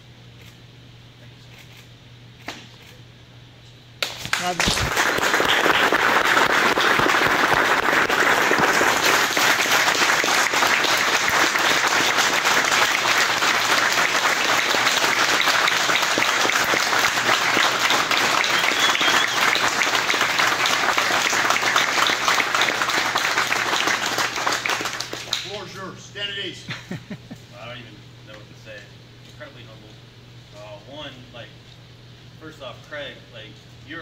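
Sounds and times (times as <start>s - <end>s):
group applauding: 4.0s - 25.6s.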